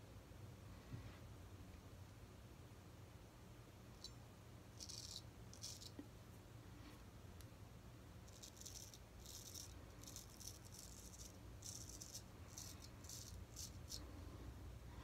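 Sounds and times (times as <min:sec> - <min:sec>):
razor scraping stubble: 0:08.3 - 0:14.0.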